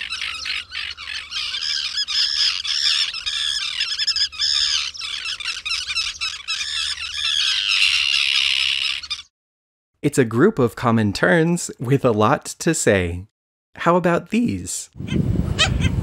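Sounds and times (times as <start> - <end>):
terns calling: 0.0 - 9.3.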